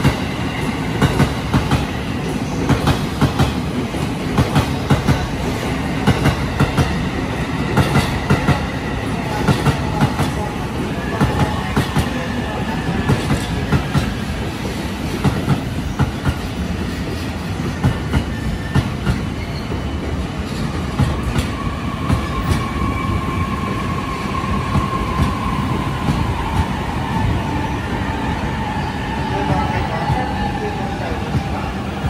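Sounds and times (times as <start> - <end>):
high train whine: 0.0 - 32.0
train rolling past rumbling: 0.0 - 32.0.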